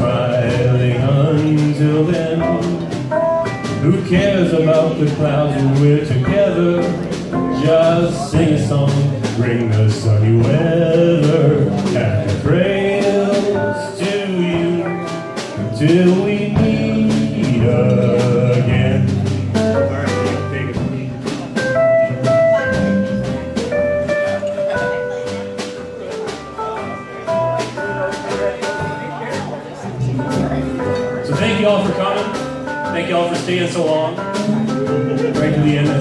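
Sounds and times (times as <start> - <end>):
man singing: 0.0 - 21.4, 30.9 - 36.0
digital piano: 0.0 - 36.0
strummed acoustic guitar: 0.0 - 36.0
upright bass: 0.0 - 36.0.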